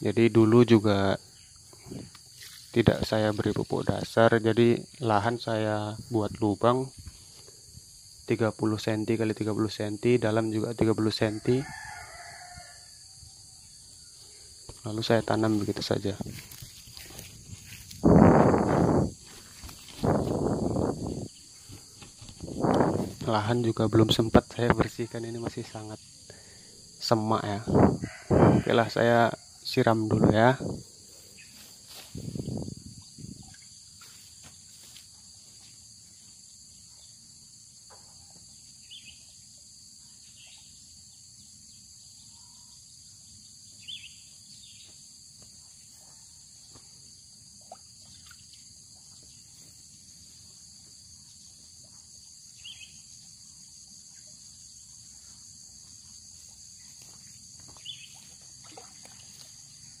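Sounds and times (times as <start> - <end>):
insects droning: 0.0 - 60.0.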